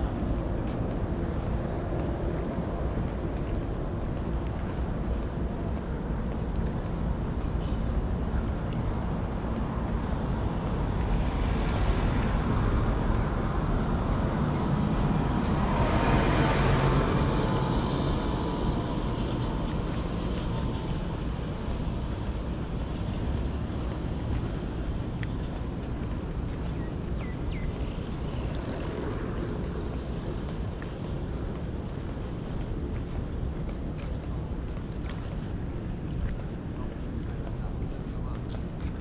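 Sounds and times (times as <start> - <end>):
traffic noise: 0.0 - 39.0
vehicle passing by: 10.8 - 22.4, 27.9 - 32.3.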